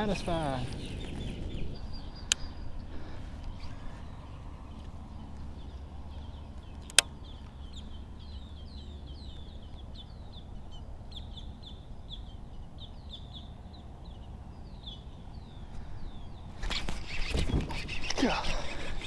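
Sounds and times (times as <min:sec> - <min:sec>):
birds chirping: 0:00.0 - 0:19.0
steady low rumble: 0:00.0 - 0:19.0
sharp click: 0:06.8 - 0:07.1.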